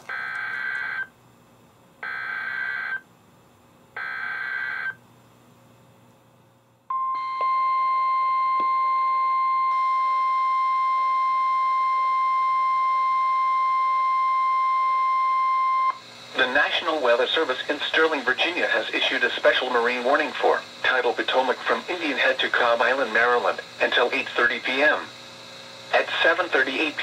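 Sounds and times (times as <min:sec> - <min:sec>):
steady warning alarm tone: 0:00.1 - 0:01.1, 0:02.0 - 0:03.0, 0:04.0 - 0:05.0, 0:06.9 - 0:18.8.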